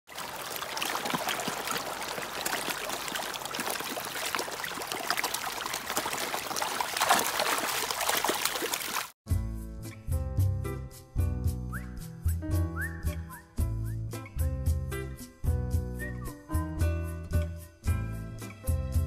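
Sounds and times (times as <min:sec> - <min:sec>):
fish splashing at water surface: 0:00.1 - 0:09.2.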